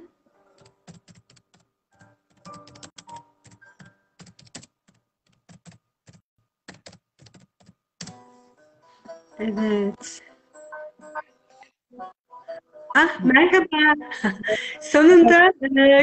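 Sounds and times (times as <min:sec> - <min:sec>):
keyboard typing clicks: 0:00.6 - 0:08.2
faint music: 0:08.0 - 0:16.0.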